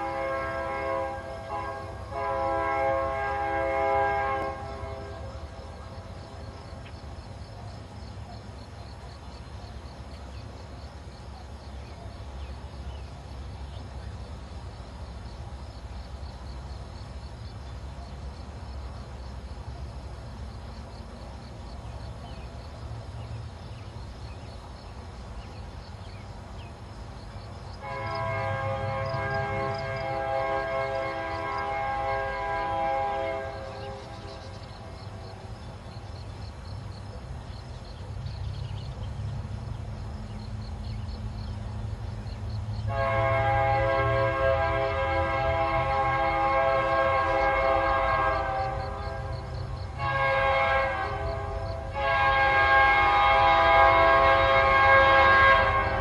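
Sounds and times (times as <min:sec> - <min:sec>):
locomotive air horn: 0:00.0 - 0:05.4, 0:27.8 - 0:34.4, 0:42.9 - 0:56.0
low train rumble: 0:00.0 - 0:56.0.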